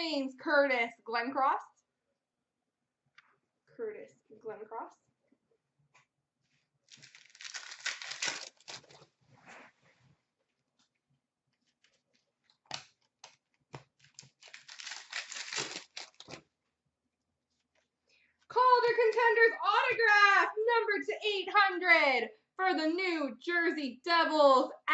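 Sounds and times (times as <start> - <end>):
card pack wrappers tearing and crinkling: 6.9 - 9.1, 14.0 - 16.4.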